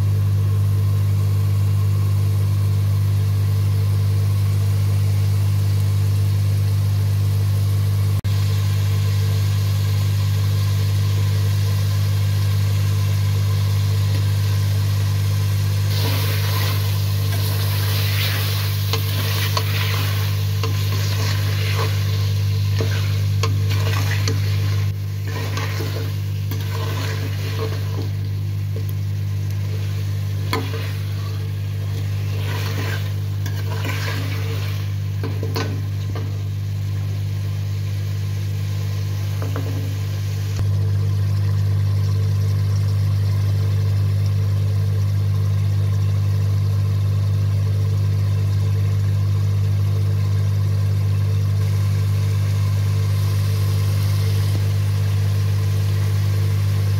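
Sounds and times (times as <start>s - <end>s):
steady low hum: 0.0s - 46.5s
food sizzling in a pan: 8.2s - 40.6s, 51.6s - 56.9s
metal spoon scraping a pan: 15.9s - 28.2s, 29.6s - 36.3s.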